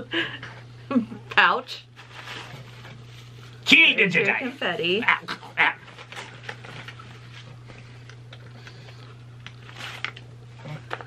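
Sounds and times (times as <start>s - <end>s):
steady low hum: 0.0s - 11.0s
paper and foil rustling: 1.9s - 5.0s, 5.6s - 7.6s, 8.6s - 11.0s.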